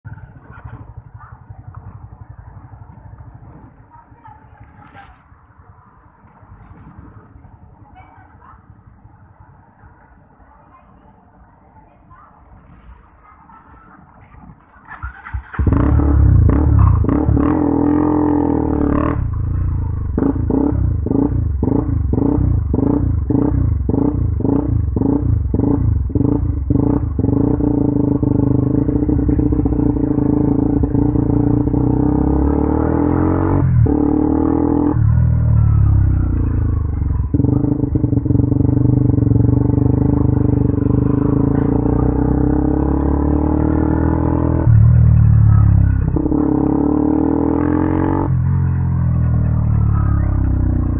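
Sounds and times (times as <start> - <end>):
motorcycle engine revving: 15.0 - 50.9.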